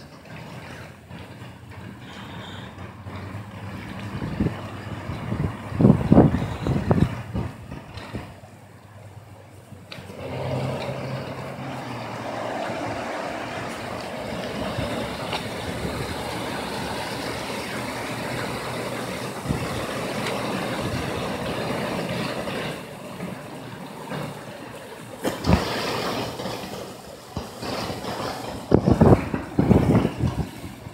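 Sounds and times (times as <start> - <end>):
creek rushing in flood: 9.9 - 30.9.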